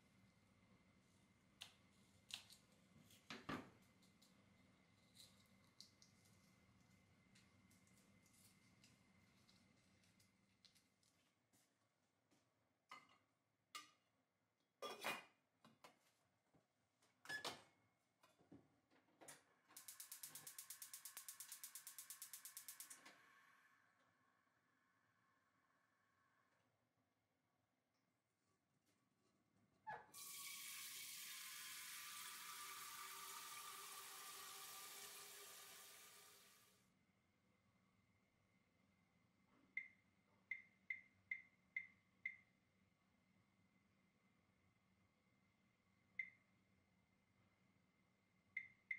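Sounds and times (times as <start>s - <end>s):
water running into metal pot: 30.2s - 36.7s.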